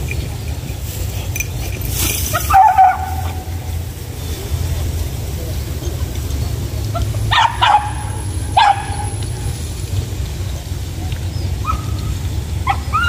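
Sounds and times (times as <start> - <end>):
dog yelping barks: 1.6 - 3.6, 7.3 - 9.1, 11.6 - 13.0.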